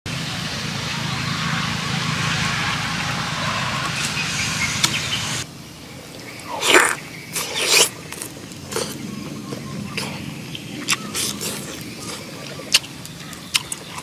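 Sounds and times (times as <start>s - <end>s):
outdoor background noise: 0.1s - 14.0s
man biting and slurping food: 6.5s - 9.0s, 10.8s - 14.0s.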